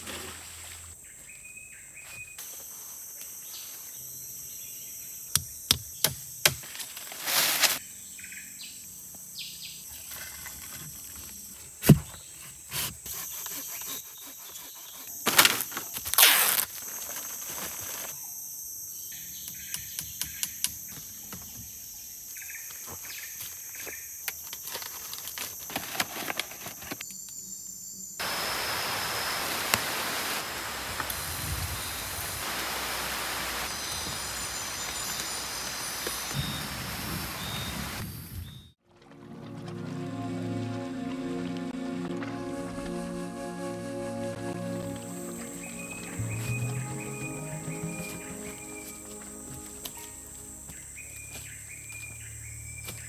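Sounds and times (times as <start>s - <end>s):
insects droning: 0.3s - 38.4s, 41.3s - 53.0s
bird chirps: 45.3s - 53.0s.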